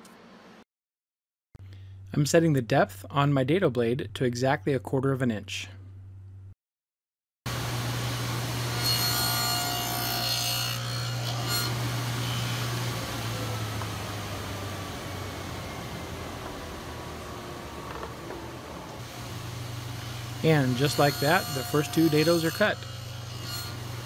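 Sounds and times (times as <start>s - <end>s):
table saw cutting wood: 7.5s - 24.0s
table saw humming: 7.5s - 24.0s.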